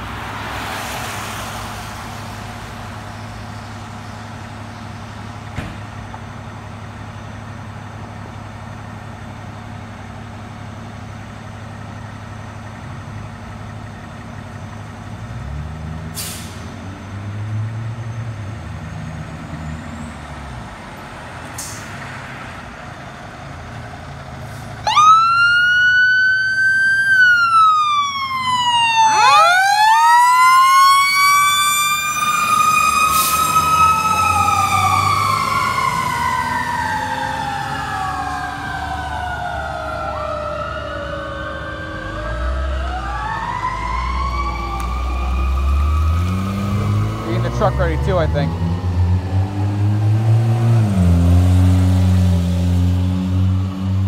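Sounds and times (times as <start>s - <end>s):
diesel engine running: 18.0s - 51.6s
fire engine siren wailing: 24.7s - 54.0s
second siren tone: 27.2s - 47.3s.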